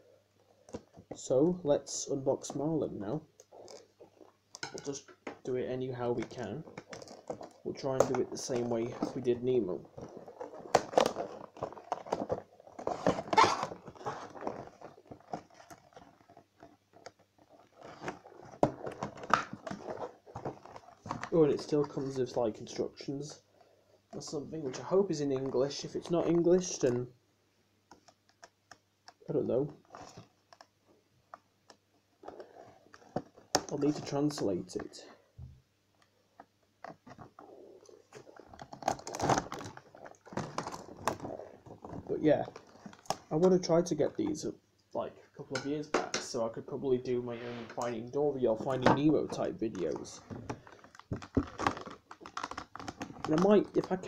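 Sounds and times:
packaging rustling: 0:06.2 - 0:22.7, 0:36.4 - 0:43.8, 0:48.5 - 0:54.0.

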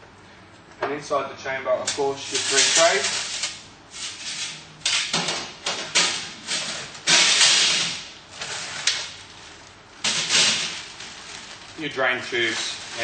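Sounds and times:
plastic bag rustling and crinkling: 0:08.3 - 0:13.0.

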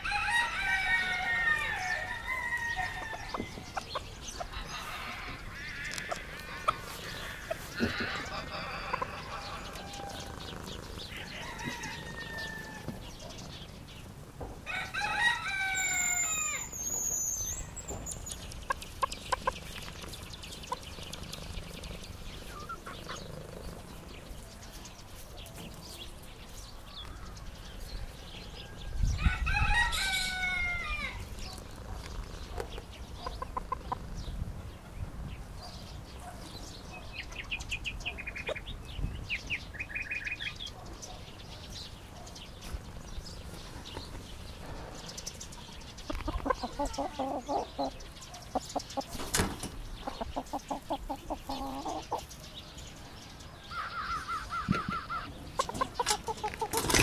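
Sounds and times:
rooster crowing: 0:00.0 - 0:03.7, 0:07.8 - 0:10.4, 0:11.2 - 0:13.0, 0:14.7 - 0:16.8, 0:28.6 - 0:31.2
chicken clucking: 0:03.0 - 0:12.7, 0:17.7 - 0:21.6, 0:22.4 - 0:23.8, 0:30.4 - 0:34.1, 0:46.1 - 0:49.4, 0:50.0 - 0:52.3, 0:54.1 - 0:57.0.

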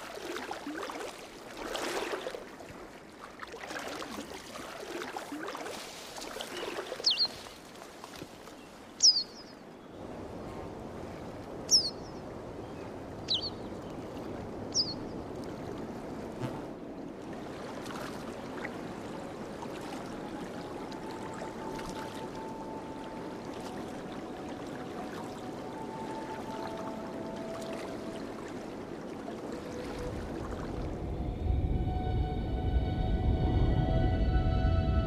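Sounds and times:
water rushing: 0:00.0 - 0:35.0
bird calling: 0:08.7 - 0:09.6, 0:11.7 - 0:12.1, 0:13.3 - 0:13.7.

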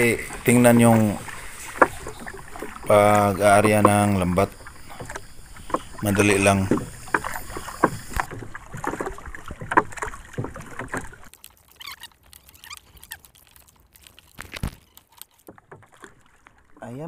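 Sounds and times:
net and floats rustling and clicking: 0:00.0 - 0:17.0
dull thump: 0:03.6 - 0:11.3.

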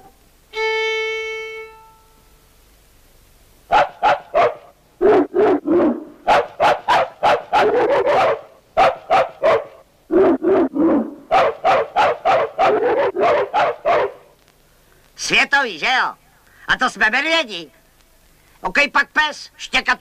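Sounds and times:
cartoon bears yapping: 0:03.7 - 0:14.3.

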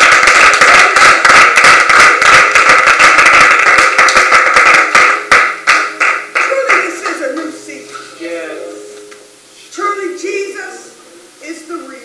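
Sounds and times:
congregation clapping: 0:00.0 - 0:07.6.

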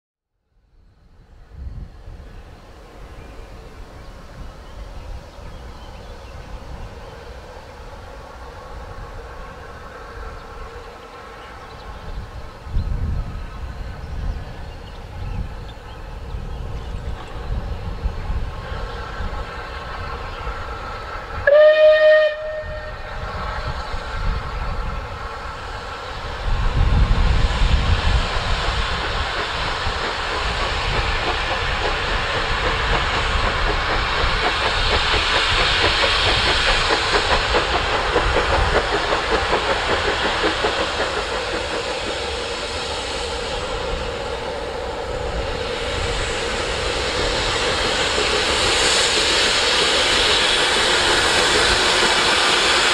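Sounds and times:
steam train exhaust and rumble: 0:00.5 - 0:52.9
steam locomotive whistle: 0:21.4 - 0:23.4.

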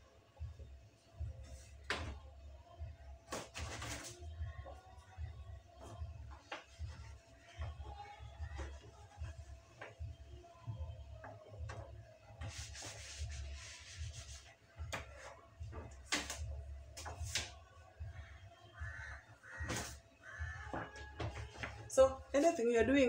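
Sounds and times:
cloth rubbing dishes: 0:11.2 - 0:17.6.

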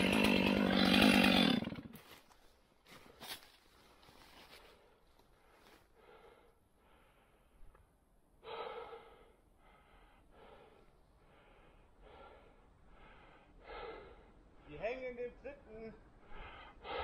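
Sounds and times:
man breathing hard: 0:04.4 - 0:14.8, 0:16.0 - 0:17.0.

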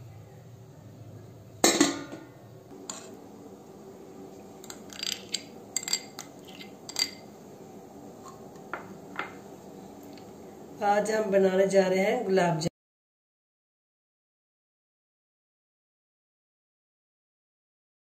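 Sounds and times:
metal cookware clanking: 0:01.6 - 0:03.2, 0:04.6 - 0:07.3
utensils clinking and tapping: 0:04.6 - 0:07.3.

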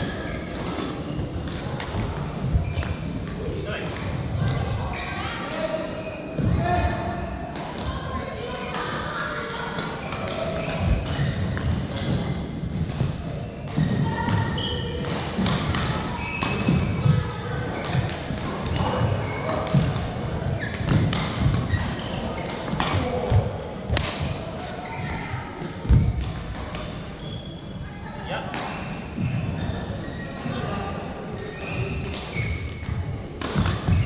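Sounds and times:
racket hitting shuttlecock: 0:19.5 - 0:24.8, 0:33.4 - 0:34.0.

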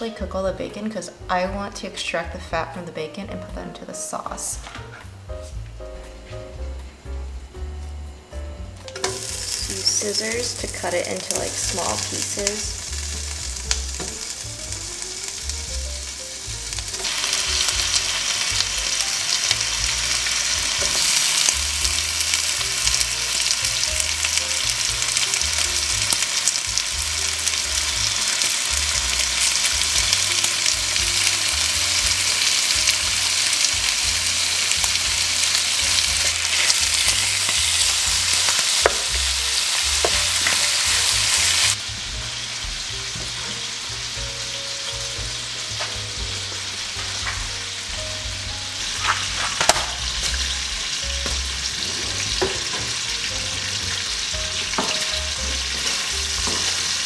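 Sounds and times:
bacon sizzling in a pan: 0:08.8 - 0:57.0.

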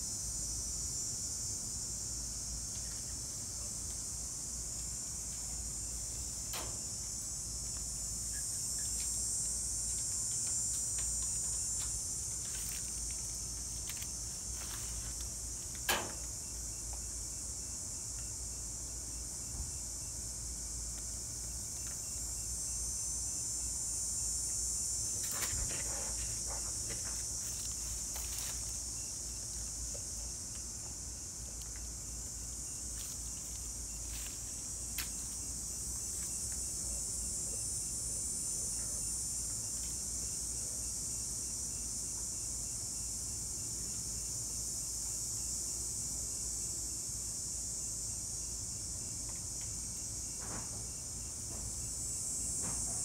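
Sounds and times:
insects chorus: 0:00.0 - 0:53.0.

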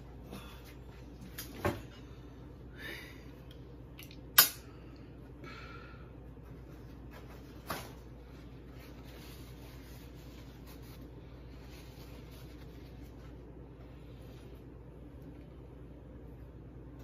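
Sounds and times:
paper towel rubbing and rustling: 0:06.4 - 0:14.8.

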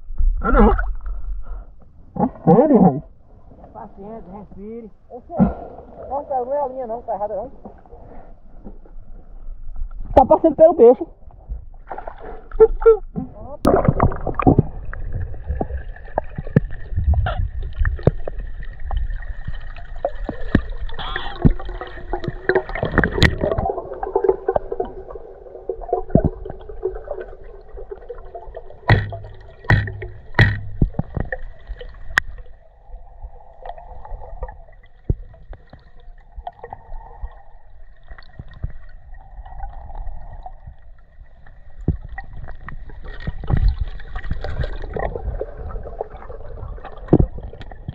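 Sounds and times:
underwater gurgling and bubbling: 0:13.6 - 0:47.9
clicks and knocks: 0:28.9 - 0:31.4.

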